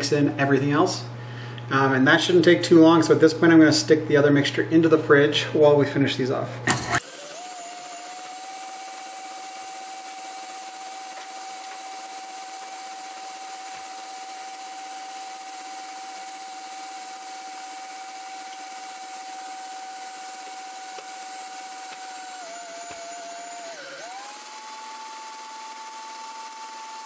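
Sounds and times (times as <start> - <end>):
stand mixer motor whine: 6.7 - 27.0
whisk whirring in steel bowl: 7.0 - 27.0.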